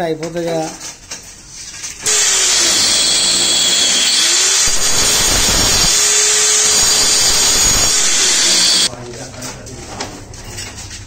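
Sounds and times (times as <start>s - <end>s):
tile cutter grinding tile: 2.0s - 8.9s.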